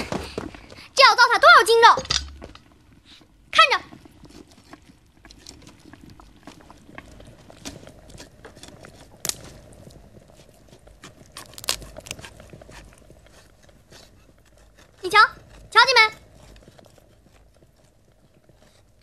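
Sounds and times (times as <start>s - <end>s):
knife cutting and scraping meat: 3.9s - 19.0s.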